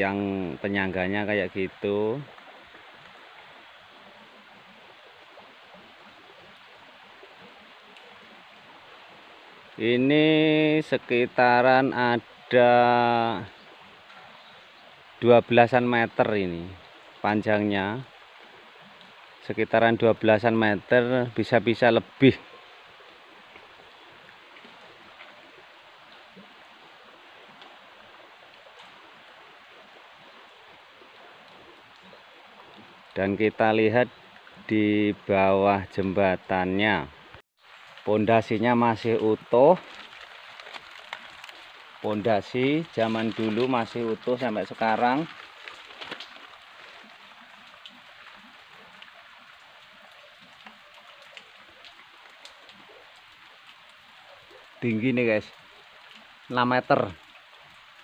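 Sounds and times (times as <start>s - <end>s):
flowing water: 0.0s - 58.0s
small drip ticks: 1.7s - 9.7s, 13.4s - 20.5s, 21.3s - 34.7s, 39.0s - 58.0s
water trickling down stone: 37.6s - 58.0s.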